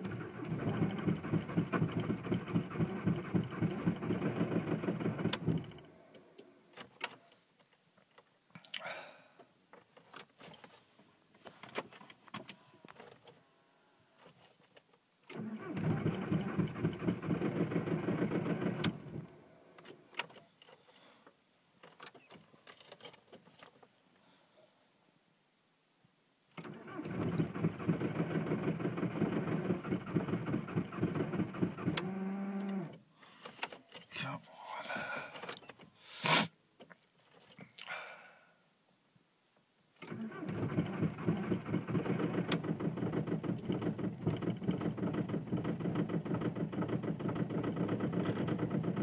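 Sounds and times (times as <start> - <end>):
diesel engine cranking: 0.0 - 5.9, 15.3 - 19.3, 26.6 - 34.0, 40.0 - 49.0.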